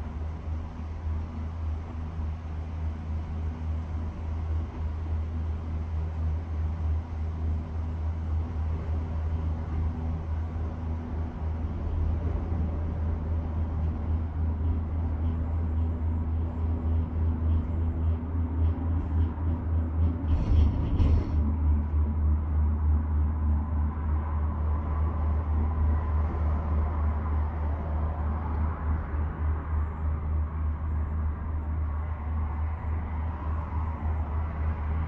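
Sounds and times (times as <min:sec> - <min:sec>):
gondola cabin rumble and hum: 0:00.0 - 0:35.0
gondola grip rattle: 0:08.7 - 0:22.7.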